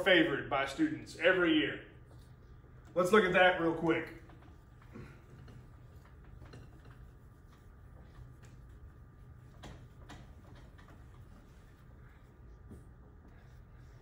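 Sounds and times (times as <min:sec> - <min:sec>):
low room hum: 0:00.0 - 0:14.0
eraser wiping whiteboard: 0:05.8 - 0:14.0.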